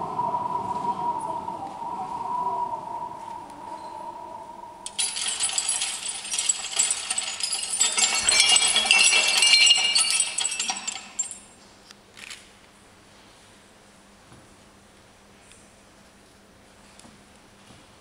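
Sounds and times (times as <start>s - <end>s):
metallic jingling and tinkling: 4.8s - 11.5s.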